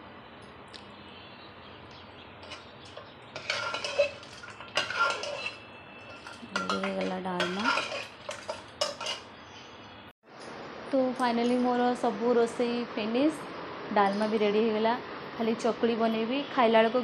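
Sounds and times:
ladle scraping a metal pot: 0:02.4 - 0:09.3.

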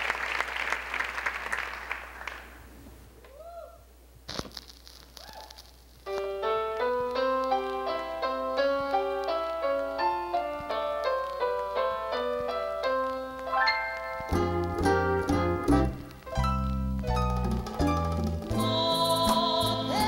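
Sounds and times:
piano broken chords: 0:06.1 - 0:20.0.

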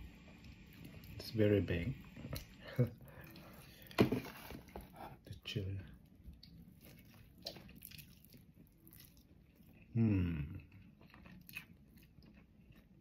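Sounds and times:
person chewing crispy chicken: 0:06.3 - 0:13.0
person humming with mouth full: 0:10.0 - 0:10.6.

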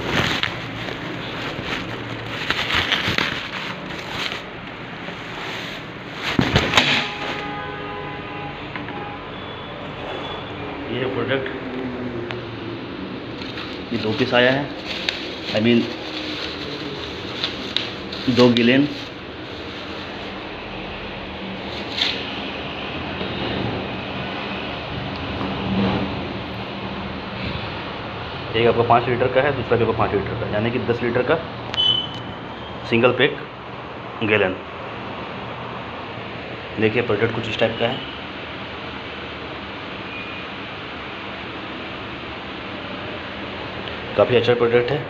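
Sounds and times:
steady rushing noise: 0:00.0 - 0:07.5
plastic and cardboard crackling: 0:00.0 - 0:07.6, 0:13.4 - 0:20.5.

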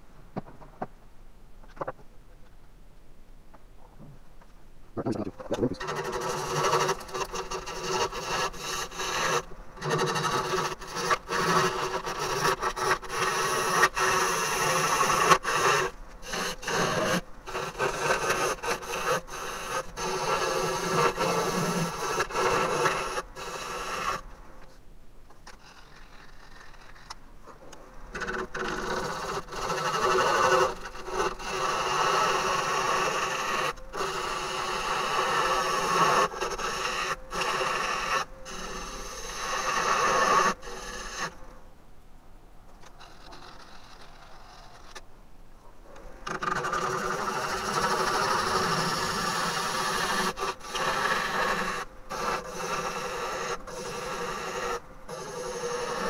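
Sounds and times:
gouge scraping wood on lathe: 0:05.8 - 0:24.2, 0:28.1 - 0:41.4, 0:46.3 - 0:56.0.

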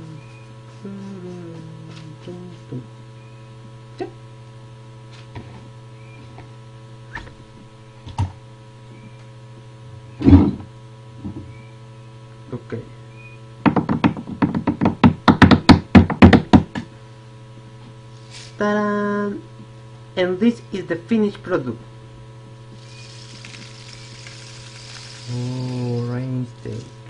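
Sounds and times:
electrical hum: 0:00.0 - 0:27.0.

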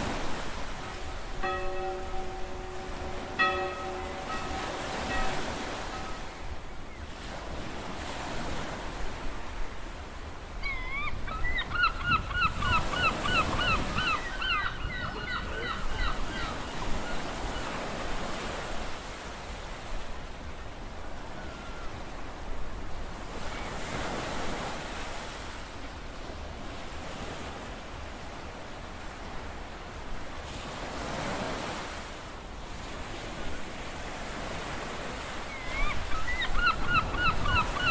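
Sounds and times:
sea waves washing onto beach: 0:00.0 - 0:10.5
bird calling in short rising notes: 0:10.6 - 0:17.7, 0:35.5 - 0:37.9.

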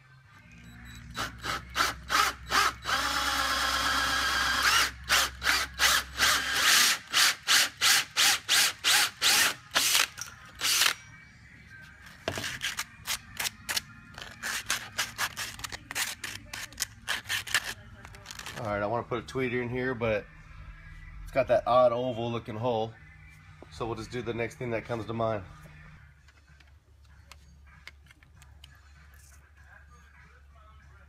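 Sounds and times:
cordless drill cutting plastic: 0:01.2 - 0:11.0.

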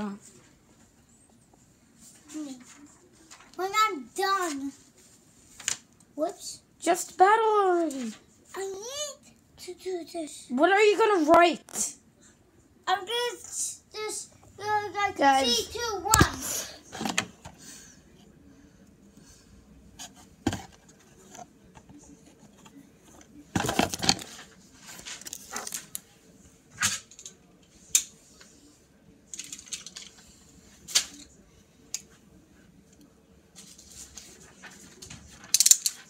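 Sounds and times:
plastic parts clicking and tapping: 0:29.3 - 0:30.2, 0:35.4 - 0:36.0.

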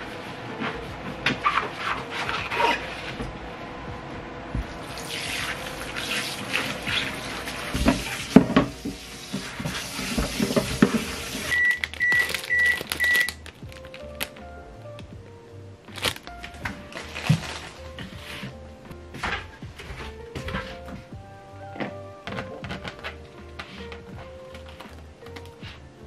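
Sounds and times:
tap water running into sink: 0:04.8 - 0:11.6
microwave beeps: 0:11.4 - 0:13.4.

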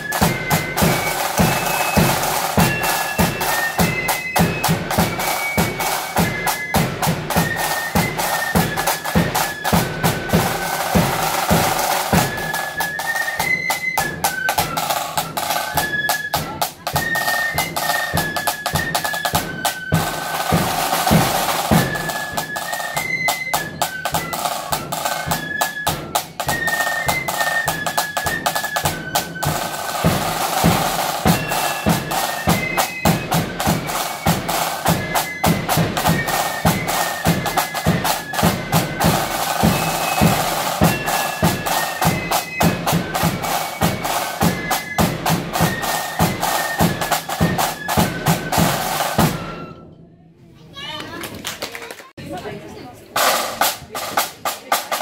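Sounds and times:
side drum strokes and rolls: 0:00.0 - 0:49.6, 0:53.2 - 0:55.0
high wind melody: 0:00.0 - 0:49.8
marching band playing: 0:00.0 - 0:49.9, 0:53.2 - 0:55.0.

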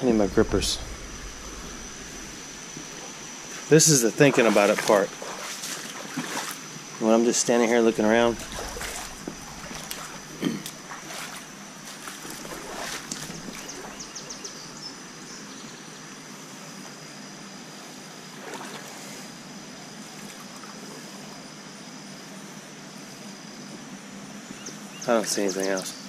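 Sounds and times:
creek water trickling over rocks: 0:00.8 - 0:15.3.

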